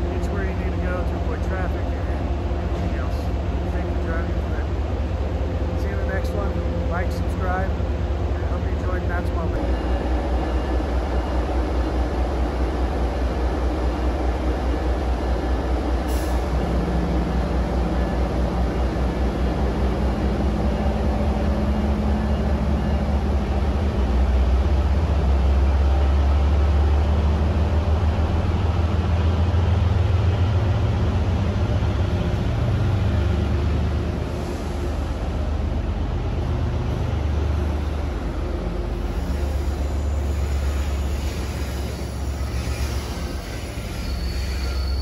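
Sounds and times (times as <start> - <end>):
diesel locomotive engine throbbing: 0.0 - 45.0.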